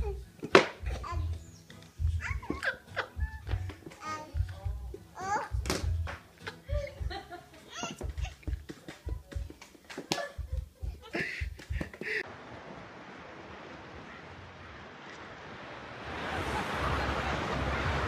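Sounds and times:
car road noise: 0:12.2 - 0:18.0.

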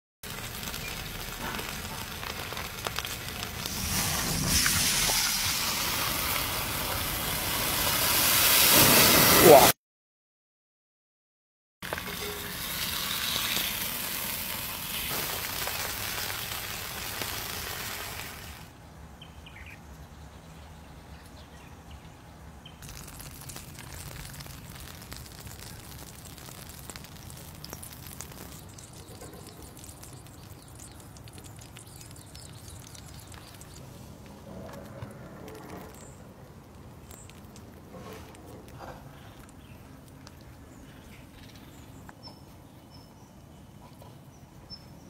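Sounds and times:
meat sizzling in a pan: 0:00.3 - 0:09.4, 0:11.8 - 0:18.7, 0:22.8 - 0:33.8
faint bird chirps: 0:27.6 - 0:33.9.

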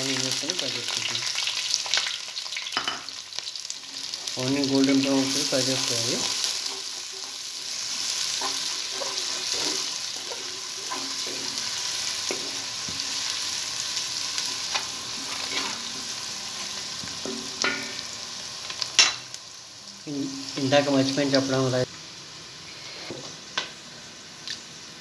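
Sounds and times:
onions sizzling in hot oil: 0:00.0 - 0:25.0
wooden spatula scraping pot: 0:06.2 - 0:13.2, 0:14.7 - 0:16.0.

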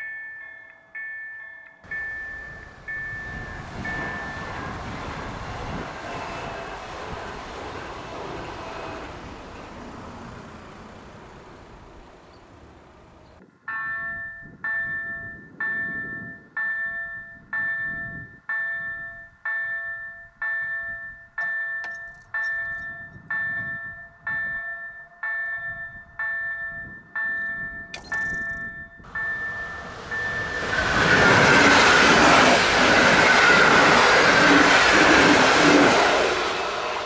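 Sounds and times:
level crossing bell ringing: 0:00.0 - 0:05.0, 0:13.6 - 0:30.6
passing train: 0:00.0 - 0:37.0.

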